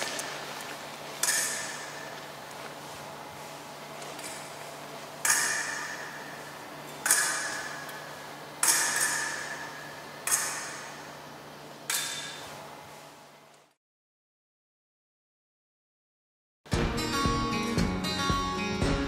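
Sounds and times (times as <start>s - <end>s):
ringing metallic hits: 1.2s - 3.6s, 4.2s - 12.8s.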